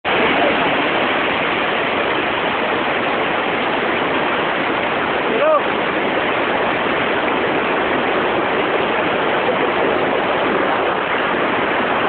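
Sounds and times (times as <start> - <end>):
stream rushing over rocks: 0.0 - 12.0.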